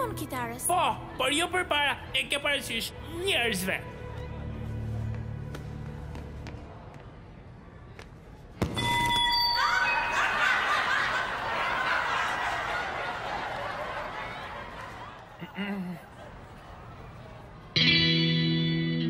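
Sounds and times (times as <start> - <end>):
audience laughing: 9.7 - 16.7.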